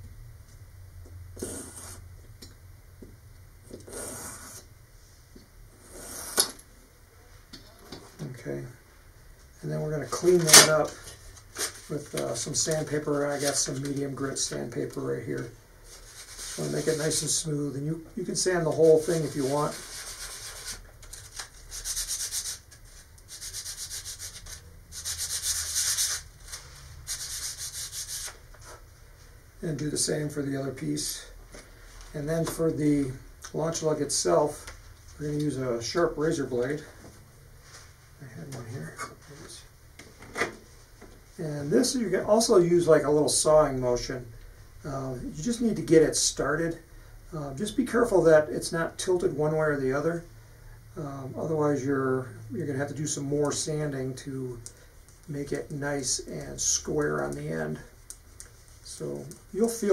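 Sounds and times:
wood sanding strokes: 23.3 - 28.4.

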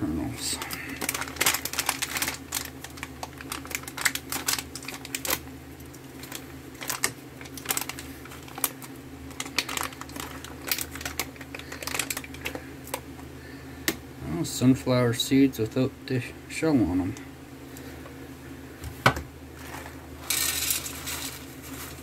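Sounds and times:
low steady hum: 0.0 - 22.0
plastic pouch crinkling: 0.4 - 13.0.

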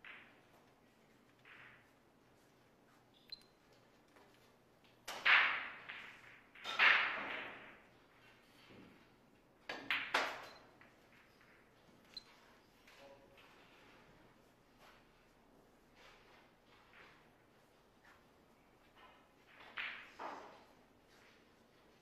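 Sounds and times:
pool balls clacking: 0.0 - 2.6, 4.4 - 9.0, 9.6 - 12.0, 18.9 - 20.7.

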